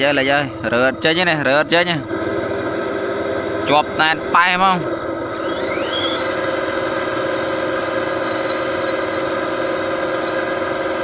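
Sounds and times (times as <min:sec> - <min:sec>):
toy truck electric motor whine: 0:05.2 - 0:11.0.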